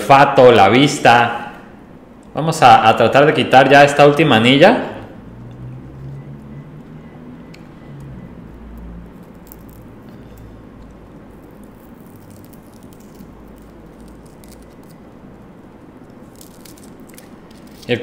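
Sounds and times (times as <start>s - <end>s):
paper crinkling and scratching: 16.2s - 18.0s.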